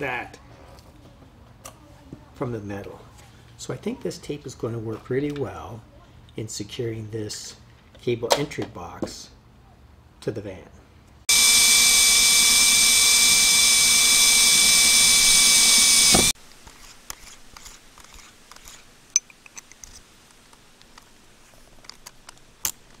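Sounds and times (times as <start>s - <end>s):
electric drill into sheet metal: 11.3s - 16.4s.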